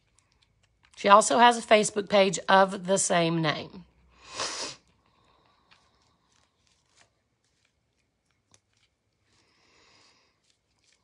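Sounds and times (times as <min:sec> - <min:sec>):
short hiss: 0:04.3 - 0:04.8.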